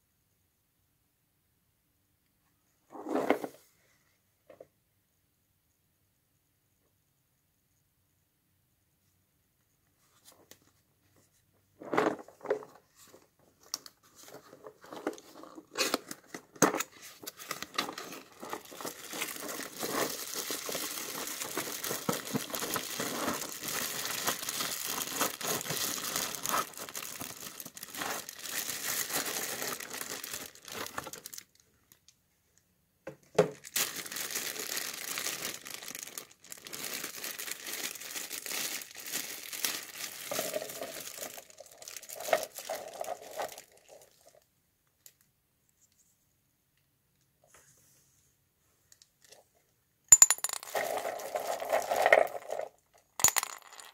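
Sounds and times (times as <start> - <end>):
plastic bag crinkling: 17.2 - 32.0, 33.5 - 44.4, 50.6 - 53.9.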